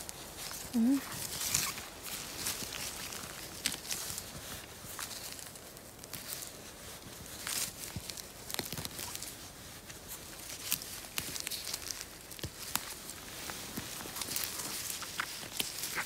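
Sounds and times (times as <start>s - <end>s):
rustling and crackling of moss: 0.0s - 16.0s
small snaps of stems pulled: 7.3s - 9.3s, 10.4s - 16.0s.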